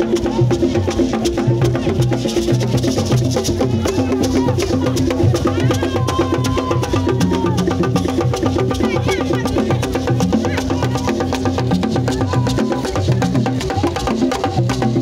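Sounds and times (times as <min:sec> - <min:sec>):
crowd voices: 0:00.0 - 0:15.0
drums beating fast rhythm: 0:00.0 - 0:15.0
sharp clicking percussion: 0:00.0 - 0:15.0.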